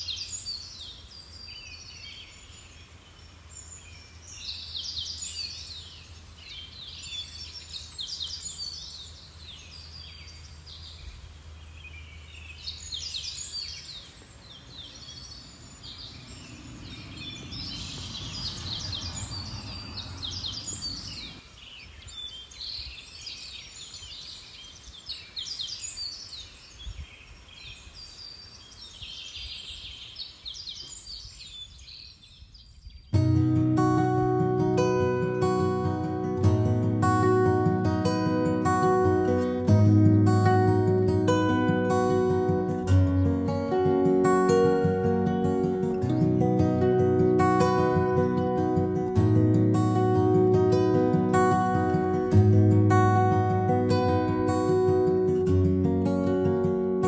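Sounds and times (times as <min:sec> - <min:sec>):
small birds chirping: 0:00.0 - 0:57.0
low rushing noise: 0:15.5 - 0:21.4.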